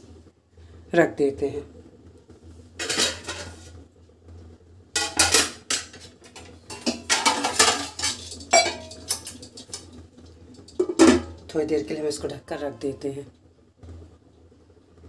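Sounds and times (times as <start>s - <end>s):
metal kitchen utensils clattering: 2.8s - 3.6s, 5.0s - 9.9s, 10.6s - 11.4s.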